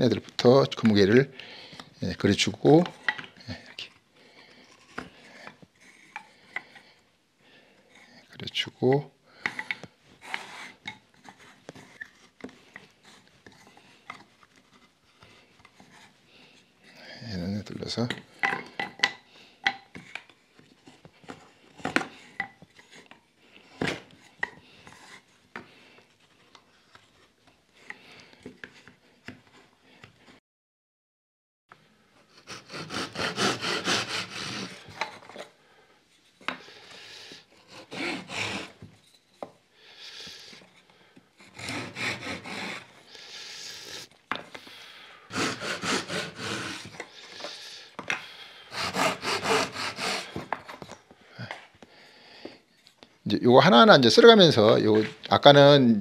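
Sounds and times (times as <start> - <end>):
hand saw cutting wood: 10.2 - 11.5, 32.3 - 35.0, 37.6 - 38.8, 41.4 - 43.0, 45.3 - 47.6, 48.7 - 50.8.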